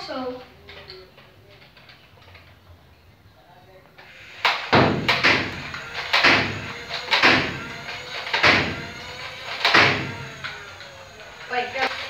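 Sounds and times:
foam dart blaster firing: 4.3s - 10.8s
dart smacking door: 4.5s - 10.3s.

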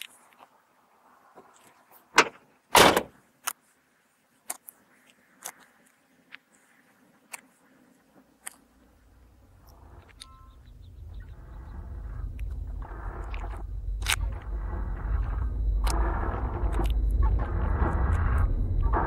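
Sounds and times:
low rumble: 9.1s - 19.0s.

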